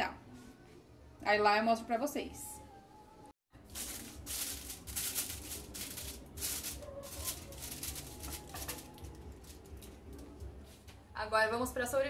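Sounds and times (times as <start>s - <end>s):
aluminium foil crinkling: 3.6s - 10.4s.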